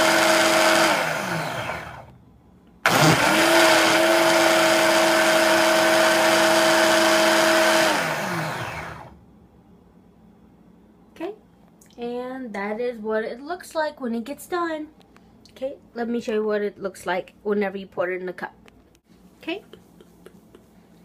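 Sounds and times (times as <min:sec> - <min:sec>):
blender motor whining: 0:00.0 - 0:02.1, 0:02.8 - 0:09.2.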